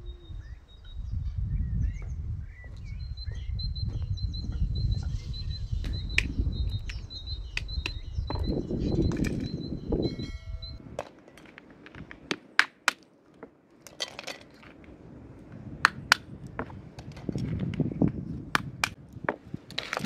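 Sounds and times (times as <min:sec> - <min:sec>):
songbird chirping: 0:00.0 - 0:11.4.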